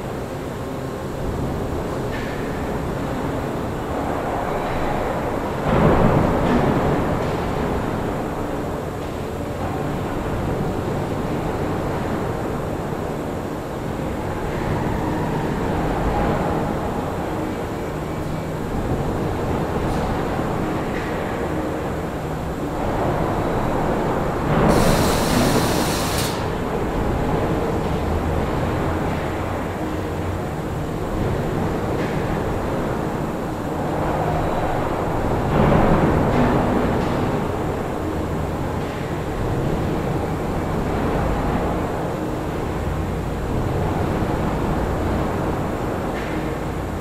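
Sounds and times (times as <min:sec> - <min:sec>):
factory working noise: 0:00.0 - 0:47.0
low rumble of machinery: 0:00.0 - 0:47.0
pneumatic air hiss: 0:24.7 - 0:26.5.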